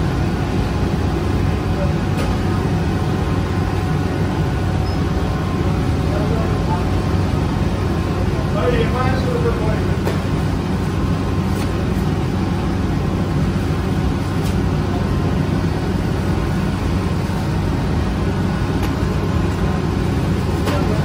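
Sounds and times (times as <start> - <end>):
oven low rumble: 0.0 - 21.0.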